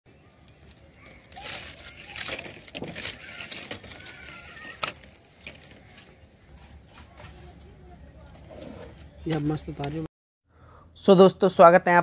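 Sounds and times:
plastic pipes scraping on stone: 1.3 - 7.4.

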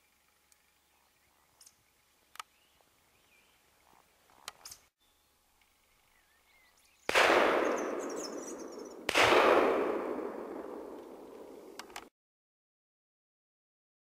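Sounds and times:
shotgun shots: 7.1 - 11.8.

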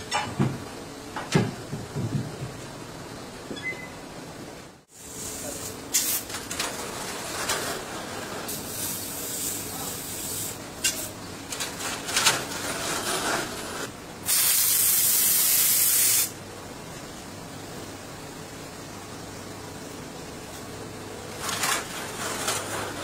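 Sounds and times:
compressed air hissing: 4.9 - 6.3, 8.5 - 11.2, 14.2 - 16.4.

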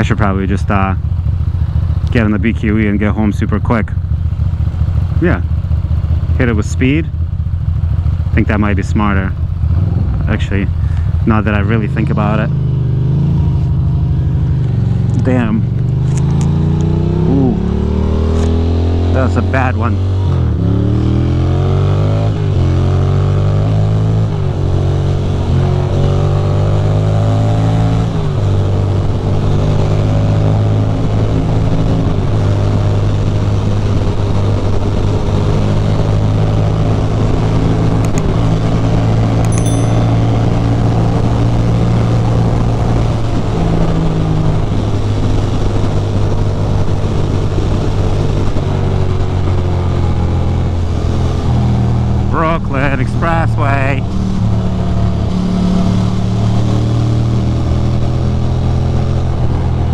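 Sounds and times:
motorcycle engine accelerating: 0.0 - 59.9.

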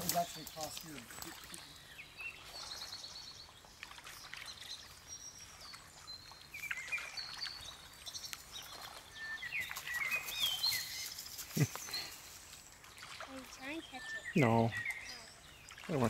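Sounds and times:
high bird chirps: 6.6 - 12.2
footsteps on forest floor: 9.4 - 12.7.

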